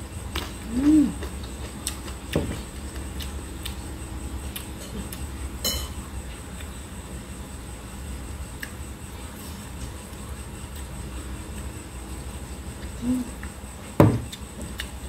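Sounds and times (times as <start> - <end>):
person humming: 0.6 - 1.3, 13.0 - 13.4
light clink on plate: 5.6 - 6.0.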